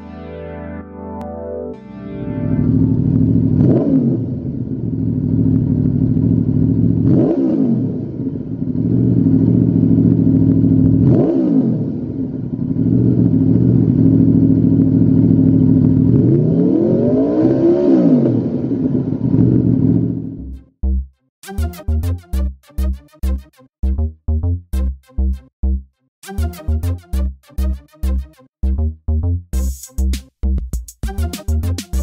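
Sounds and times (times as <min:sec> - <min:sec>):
motorcycle engine idling and revving: 0:02.7 - 0:21.0.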